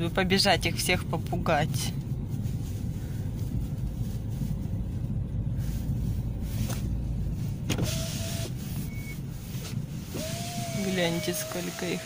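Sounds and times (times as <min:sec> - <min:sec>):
car interior rumble: 0:00.0 - 0:12.0.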